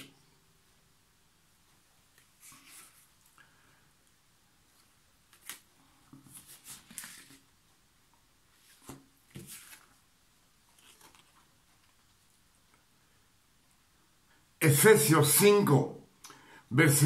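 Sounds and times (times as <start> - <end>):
paper rustling: 2.1 - 3.4, 4.7 - 7.5, 8.5 - 12.2.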